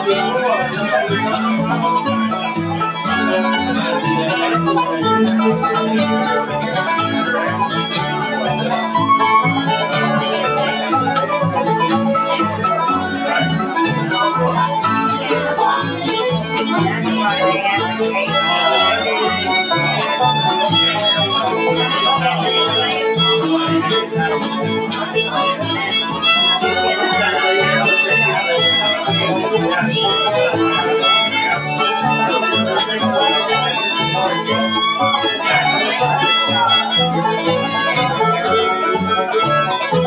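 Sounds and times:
bass notes: 0.0s - 36.5s
acoustic guitar: 0.0s - 40.0s
fiddle: 0.0s - 40.0s
mandolin: 0.0s - 40.0s.

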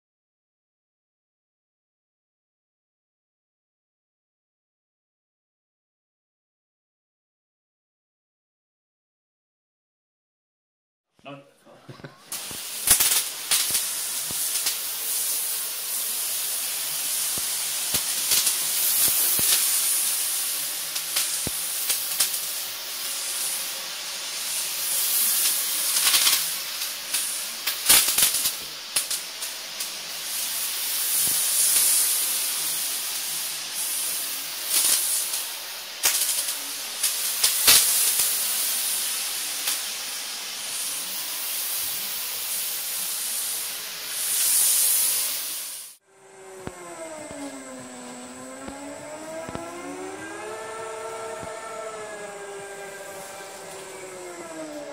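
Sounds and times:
spray gun hissing: 12.2s - 54.9s.

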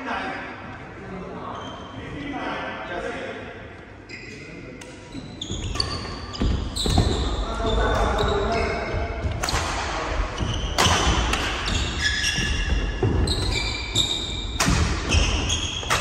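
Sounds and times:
shoes squeaking on wooden floor: 5.1s - 9.4s, 10.2s - 16.0s
rackets hitting shuttlecock: 9.2s - 13.5s, 14.2s - 16.0s.

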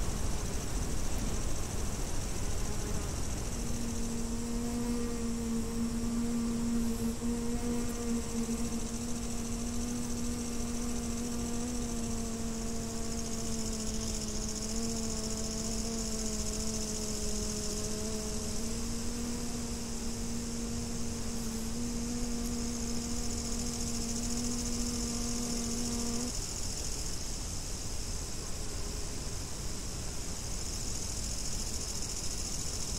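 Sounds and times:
bee buzzing in flight: 0.0s - 27.0s
grasshoppers chirring: 2.4s - 27.0s.

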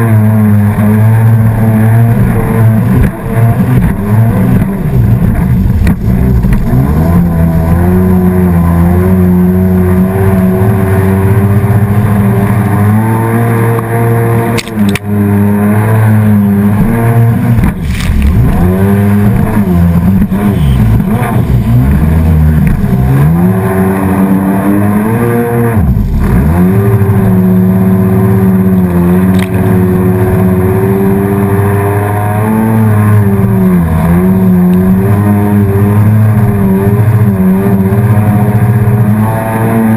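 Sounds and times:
motorboat engine running: 0.0s - 39.9s
water rushing and splashing: 16.9s - 24.5s.

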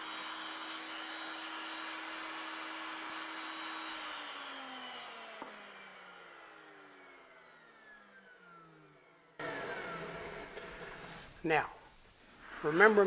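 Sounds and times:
power tool motor spinning down: 0.0s - 11.4s.

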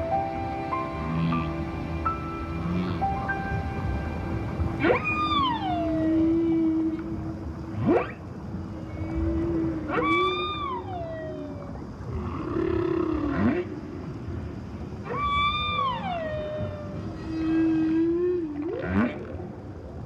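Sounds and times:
whale moaning calls: 0.0s - 13.8s, 15.0s - 19.6s
steady low tone: 0.0s - 20.0s
whale rising whoops: 4.8s - 13.6s, 15.1s - 19.4s.

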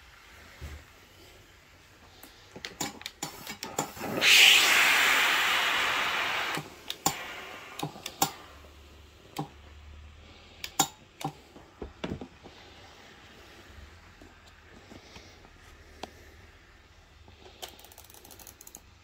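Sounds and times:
iron hissing steam: 3.2s - 9.2s.

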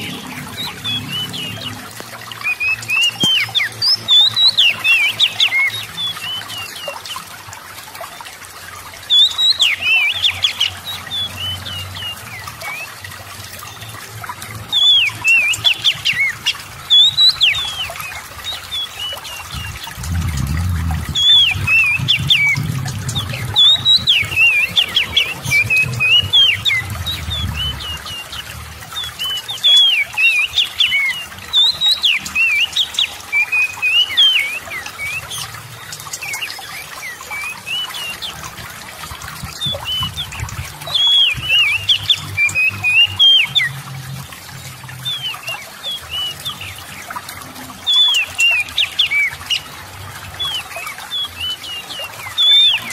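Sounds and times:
magpie-robin whistled song: 0.0s - 7.2s, 9.1s - 13.0s, 14.7s - 19.9s, 21.1s - 38.3s, 39.5s - 43.8s, 47.8s - 49.7s, 50.4s - 52.9s
faint trickling water: 0.0s - 52.9s
low rumble: 19.5s - 24.1s.

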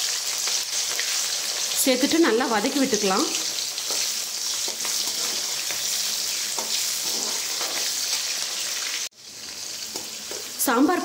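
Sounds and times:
onions sizzling in hot oil: 0.0s - 11.0s
metal ladle scraping pan: 3.8s - 8.2s.

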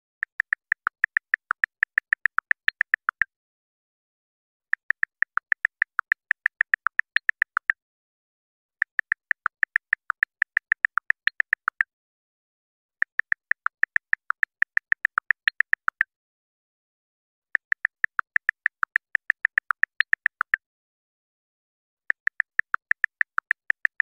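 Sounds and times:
keyboard typing clicks: 0.2s - 3.3s, 4.8s - 7.8s, 8.8s - 11.9s, 13.0s - 16.1s, 17.6s - 20.6s, 22.1s - 24.0s.

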